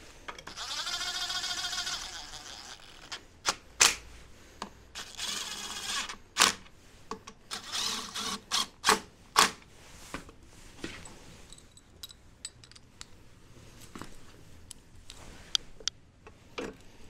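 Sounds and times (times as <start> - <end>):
metal tools clinking: 11.0 - 12.9.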